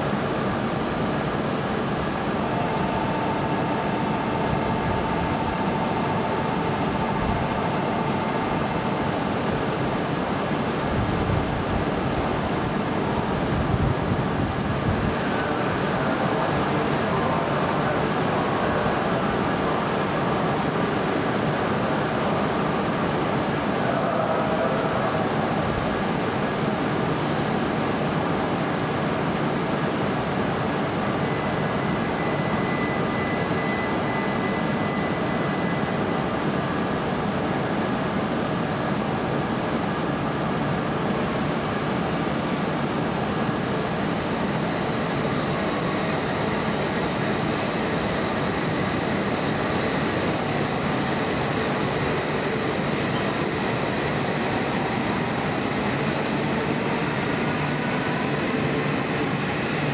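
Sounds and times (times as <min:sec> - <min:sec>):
train equipment hum: 0:00.0 - 0:16.4.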